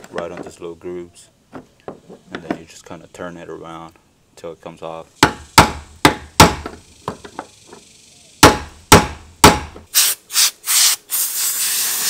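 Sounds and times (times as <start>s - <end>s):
short hissing bursts: 6.8s - 8.4s, 9.8s - 12.0s
hammer striking metal: 8.4s - 9.8s.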